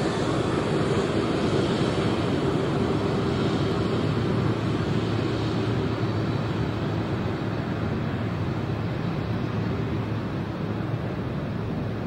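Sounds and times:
jet engines roaring at take-off: 0:00.0 - 0:12.0.

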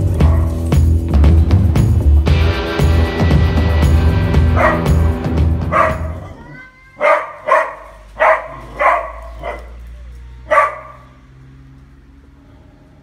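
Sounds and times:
dog barking: 0:00.2 - 0:00.6, 0:04.6 - 0:04.9, 0:05.7 - 0:06.4, 0:07.0 - 0:11.2.

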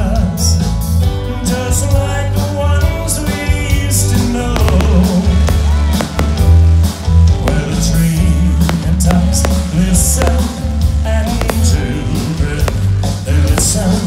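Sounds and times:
loud music with heavy bass: 0:01.9 - 0:14.0
fireworks bursting: 0:03.2 - 0:14.0.

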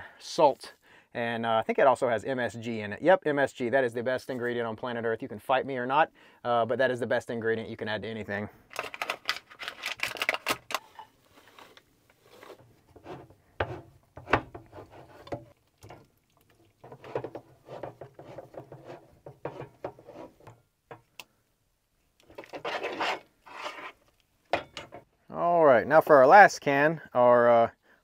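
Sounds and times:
spoon scraping a pan: 0:16.7 - 0:20.5, 0:22.3 - 0:24.0.

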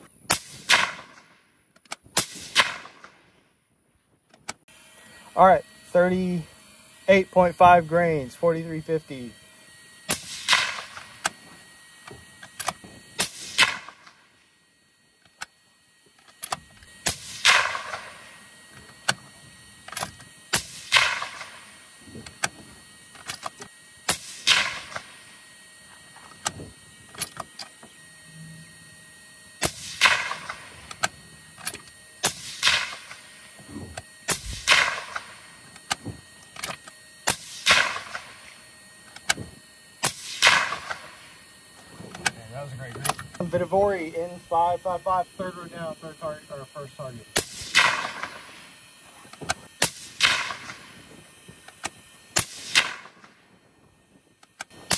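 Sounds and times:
rifle shots with echo: 0:00.3 - 0:01.3, 0:02.1 - 0:03.2, 0:10.1 - 0:11.0, 0:17.0 - 0:18.2, 0:29.6 - 0:30.7, 0:34.3 - 0:35.3, 0:37.3 - 0:38.3, 0:40.0 - 0:41.1, 0:47.4 - 0:48.5, 0:49.8 - 0:50.8, 0:52.4 - 0:53.3.

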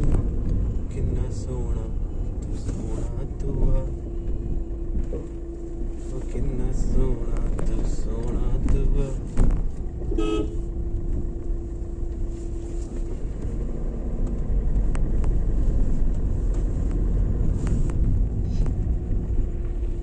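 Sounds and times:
car cabin road rumble: 0:00.0 - 0:20.0
vehicle horn: 0:10.1 - 0:10.7.

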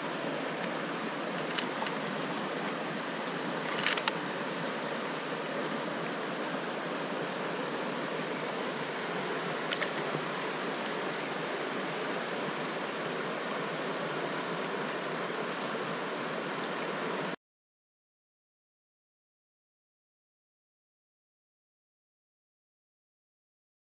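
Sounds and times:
stream water rushing: 0:00.0 - 0:17.4.

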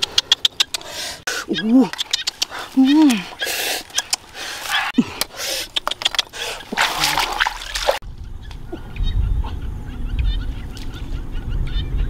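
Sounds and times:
splashing in shallow water: 0:01.4 - 0:08.0
wind rumble on microphone: 0:08.0 - 0:12.0.

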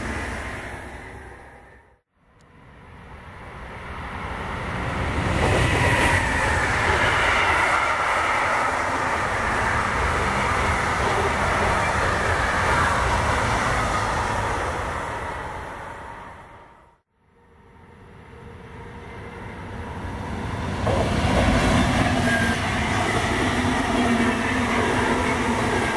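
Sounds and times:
train wheels on rails: 0:03.9 - 0:16.0, 0:19.7 - 0:25.9.

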